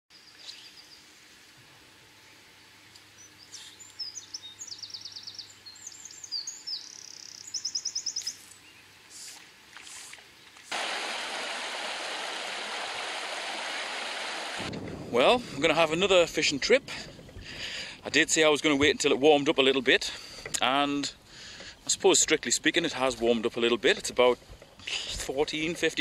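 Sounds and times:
songbird singing: 0.1 - 1.1, 2.2 - 9.2, 20.5 - 25.8
rippling stream: 9.2 - 14.8.

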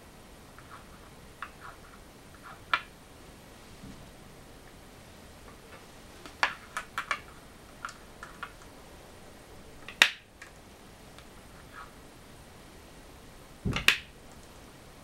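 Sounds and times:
go stones clicking on wooden board: 5.5 - 8.7, 9.8 - 10.6, 13.7 - 14.1.

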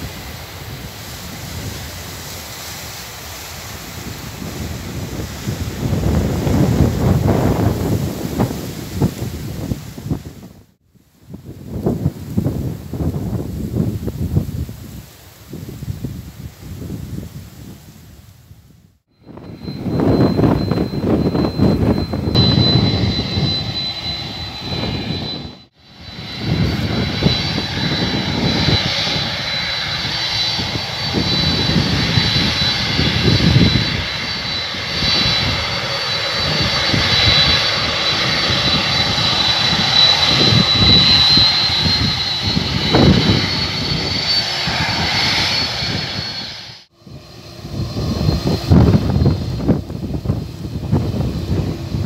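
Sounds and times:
high fan whine: 0.0 - 17.9, 19.2 - 52.0
jet engines at high power: 0.0 - 52.0.

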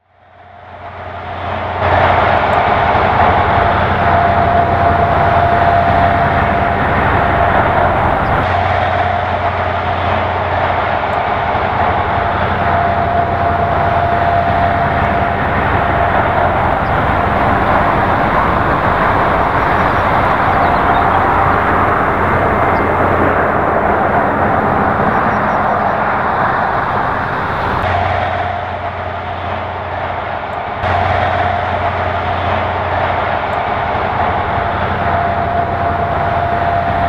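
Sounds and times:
freight train rolling over rails: 0.6 - 37.0
faint steady tone: 12.6 - 27.8.

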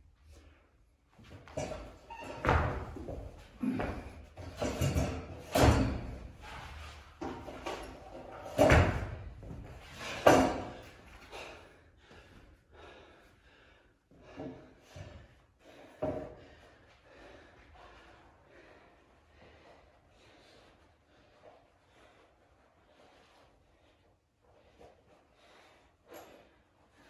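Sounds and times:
person landing on floor thuds: 1.6 - 6.6, 8.4 - 10.8.

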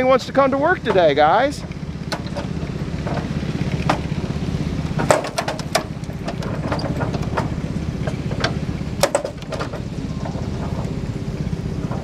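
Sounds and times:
engine idling: 0.0 - 12.0
metallic clicks and clanks: 0.8 - 4.1, 4.9 - 10.9.

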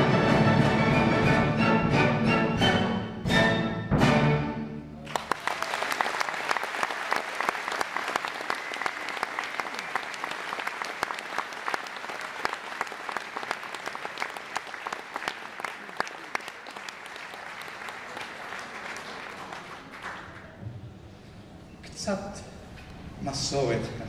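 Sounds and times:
audience clapping: 5.0 - 20.6.

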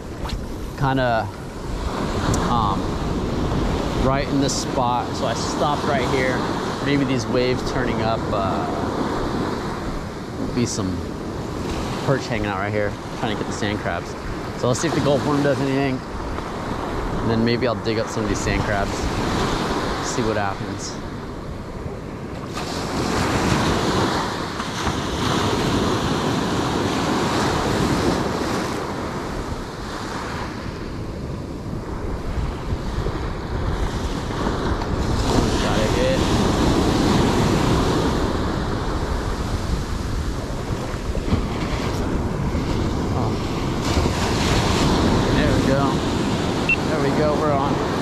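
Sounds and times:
surf breaking on beach: 0.0 - 21.2, 22.2 - 48.0
wind buffeting microphone: 0.0 - 48.0.

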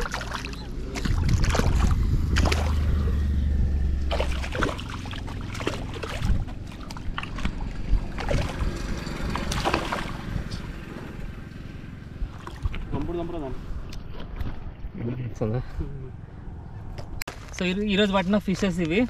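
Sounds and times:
water sloshing around legs: 0.0 - 2.9, 4.0 - 10.7, 12.2 - 13.0
fish thrashing and splashing: 0.0 - 3.0, 4.0 - 10.4, 12.2 - 12.9
wind rumble on microphone: 0.6 - 11.4, 12.1 - 15.4.

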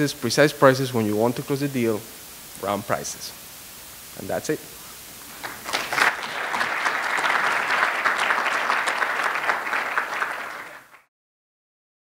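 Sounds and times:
audience applauding: 5.3 - 11.1.

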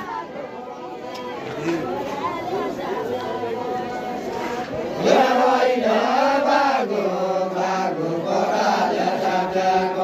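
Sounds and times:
men singing folk song together: 4.4 - 10.0.

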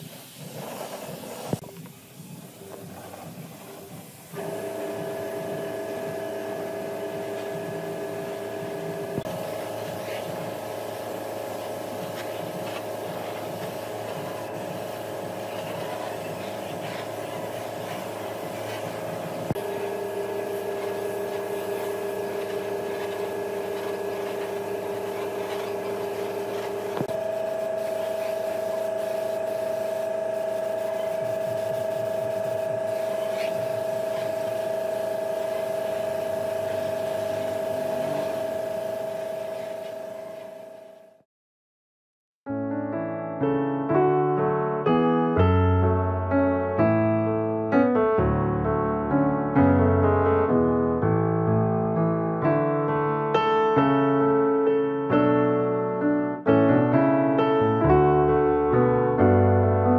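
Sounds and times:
woodworking power tool running: 4.4 - 41.2.

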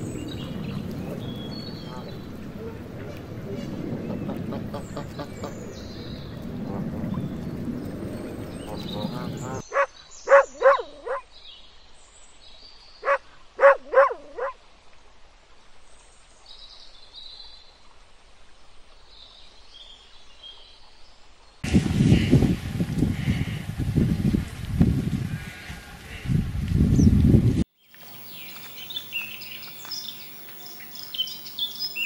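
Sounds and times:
wind and water rumble: 0.0 - 32.0
dog barking in high yips: 9.7 - 11.2, 13.0 - 14.6.

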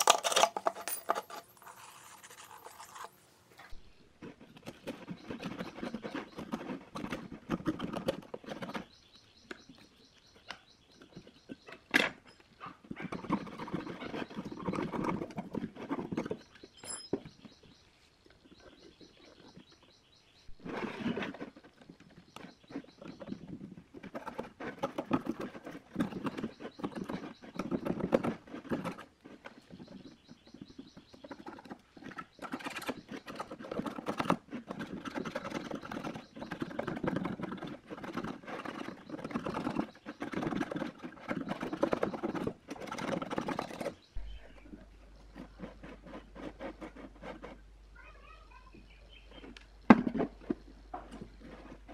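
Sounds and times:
knife scraping metal frame: 0.0 - 8.9.

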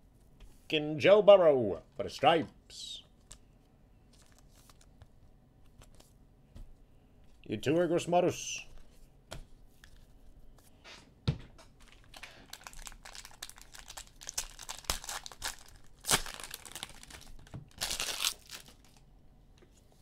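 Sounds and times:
wrapper crinkling and tearing: 11.8 - 19.1.

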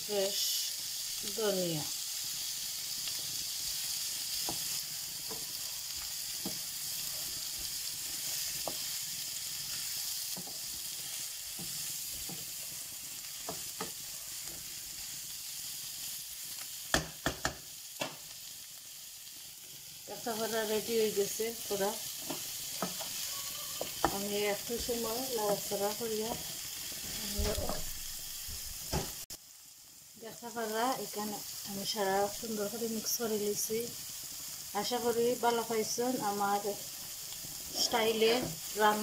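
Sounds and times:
food sizzling in a frying pan: 0.0 - 39.0
wooden spatula scraping and tapping: 4.3 - 5.6, 6.3 - 9.0, 9.8 - 12.8, 13.4 - 14.7, 22.2 - 26.5.

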